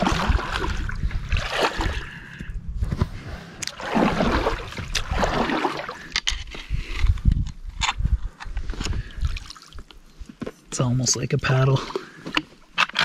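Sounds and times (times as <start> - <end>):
water splashing against boat: 0.0 - 2.4, 3.6 - 6.1.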